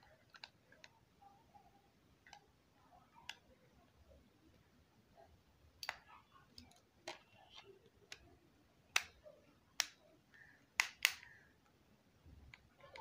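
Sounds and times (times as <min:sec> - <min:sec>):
plastic phone cover clips snapping: 0:10.8 - 0:11.3.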